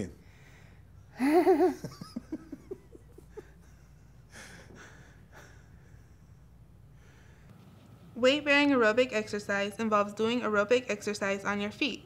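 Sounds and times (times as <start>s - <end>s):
man laughing: 1.2s - 6.5s.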